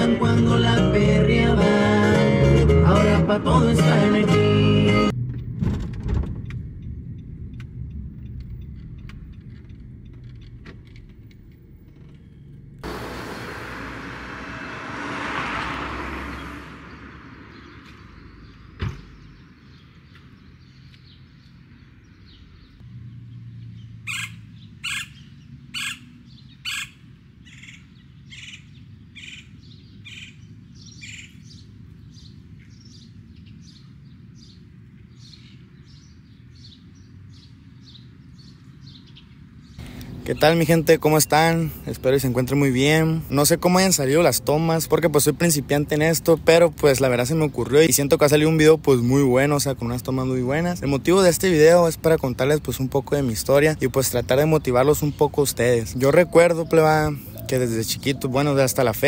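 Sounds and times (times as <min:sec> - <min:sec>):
vehicle passing by: 0:12.8 - 0:19.3, 0:21.5 - 0:26.3
bird chirping: 0:16.2 - 0:45.8, 0:46.9 - 0:59.0.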